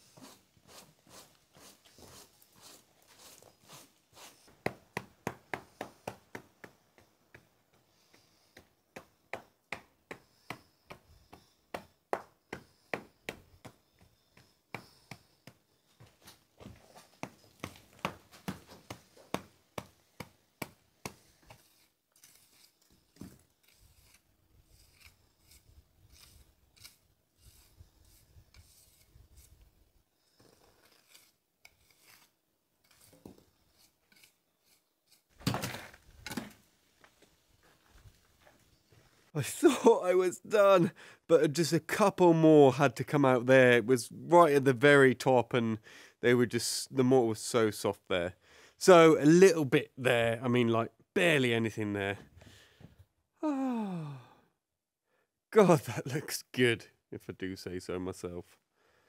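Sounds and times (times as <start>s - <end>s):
trowel scraping mortar: 0.0s - 4.8s, 21.0s - 29.6s, 30.2s - 36.0s.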